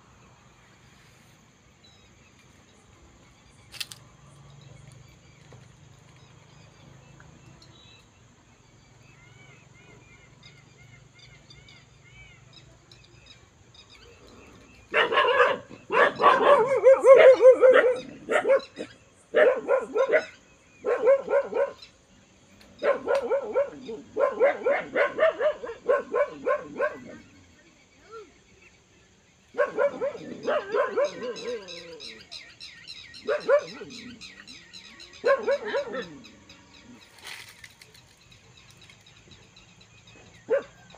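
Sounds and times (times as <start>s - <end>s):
dog barking: 14.9s - 21.9s, 22.8s - 27.3s, 29.6s - 31.9s, 33.2s - 34.1s, 35.2s - 36.3s, 40.4s - 40.9s.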